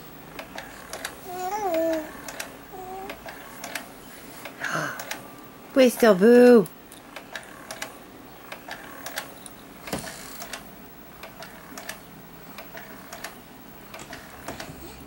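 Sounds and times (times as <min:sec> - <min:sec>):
baby swing clicking: 0:00.4 - 0:05.2, 0:12.6 - 0:14.8.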